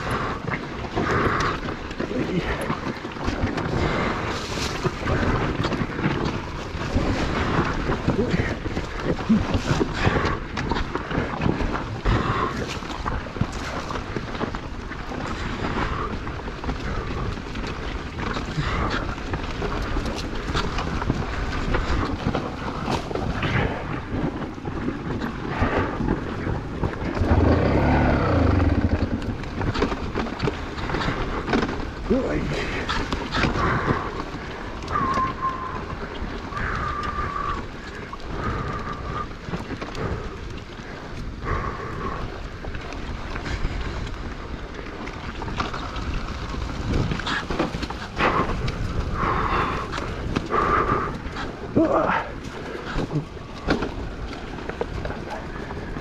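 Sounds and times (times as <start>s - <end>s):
steady rumbling noise: 0.0s - 56.0s
wind buffeting microphone: 0.0s - 56.0s
low rumble: 25.5s - 30.1s
motorcycle engine revving: 27.2s - 29.5s.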